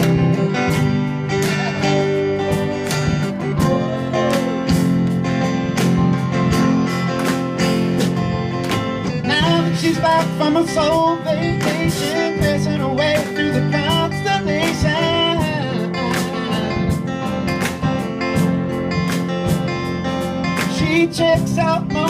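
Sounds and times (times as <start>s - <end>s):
live pop-rock band: 0.0s - 22.0s
man singing: 1.2s - 2.7s, 9.2s - 17.2s, 20.6s - 22.0s.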